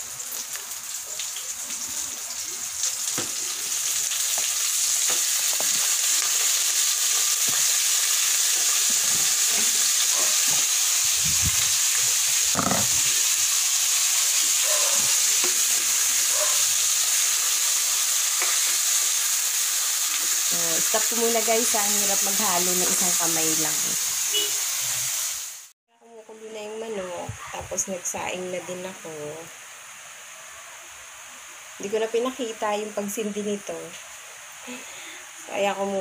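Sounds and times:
chicken sizzling in hot oil: 0.0 - 25.8
spatula scraping a pan: 7.1 - 10.8, 11.9 - 13.3, 18.3 - 19.1.

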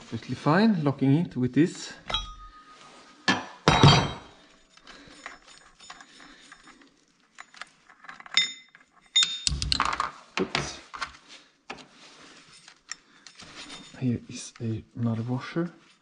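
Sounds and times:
hand tools clicking and clinking: 2.1 - 2.9, 3.8 - 10.2
ringing metal clinks: 2.1 - 3.0, 8.3 - 9.7.

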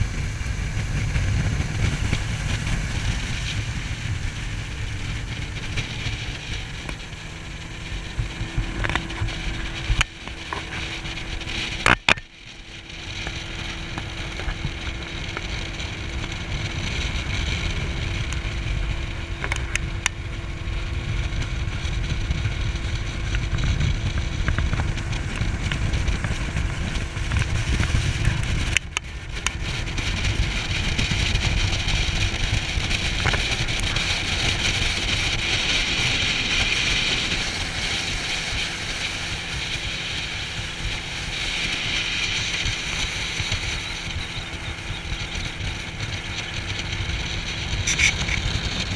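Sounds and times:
water rushing past hull: 0.0 - 19.2
outboard motor running: 0.0 - 48.9
wind rumble on microphone: 0.0 - 48.9.

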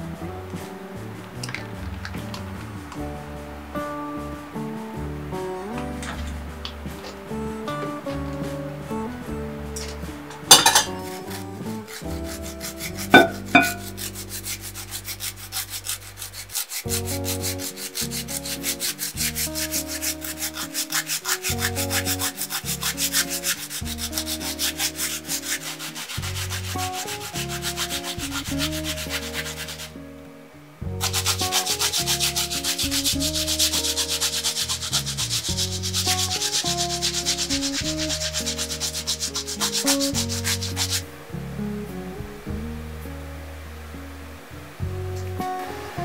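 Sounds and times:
radish grating on plastic grater: 10.6 - 29.9, 31.0 - 41.0.

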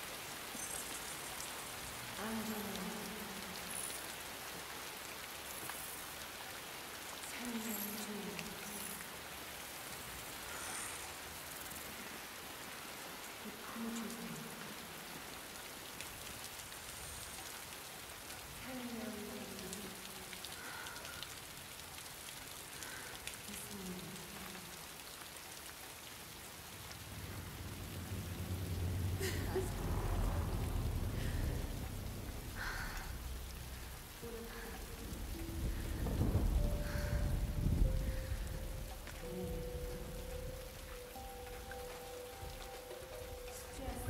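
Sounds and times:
heavy rain splashing: 0.0 - 44.0
soft low falling-pitch sound: 27.0 - 34.0.

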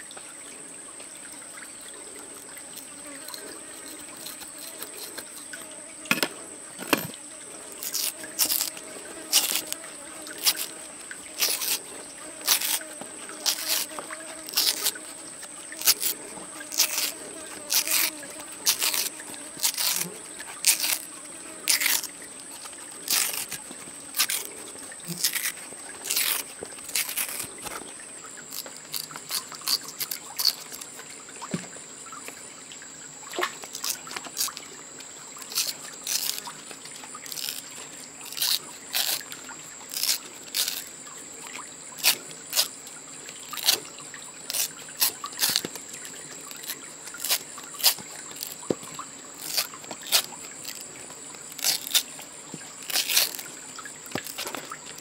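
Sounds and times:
water trickling: 0.0 - 55.0
plant strip crackling and snapping: 7.8 - 21.1, 21.7 - 27.8, 28.5 - 31.0, 33.4 - 34.6, 35.4 - 36.6, 37.2 - 40.9, 42.0 - 42.7, 43.5 - 43.9, 44.5 - 48.8, 49.4 - 50.8, 51.4 - 53.5, 54.1 - 55.0.

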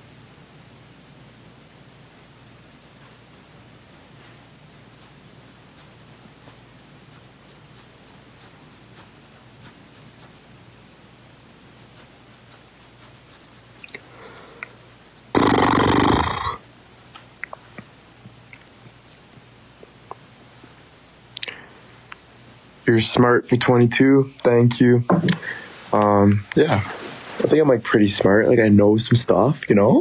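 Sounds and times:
breathy exhale into microphone: 25.3 - 26.0.

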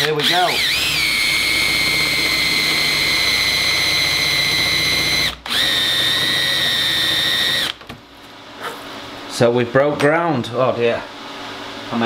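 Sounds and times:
cordless drill motor whine: 0.0 - 7.8.

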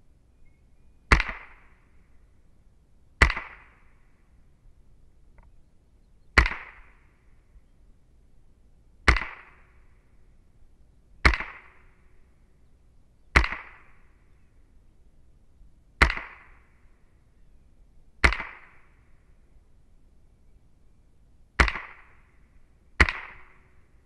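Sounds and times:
rifle shots: 1.1 - 1.7, 3.2 - 3.8, 6.4 - 7.0, 9.1 - 9.7, 11.2 - 11.9, 13.4 - 14.0, 16.0 - 16.6, 18.2 - 18.9, 21.6 - 22.2, 23.0 - 23.7.

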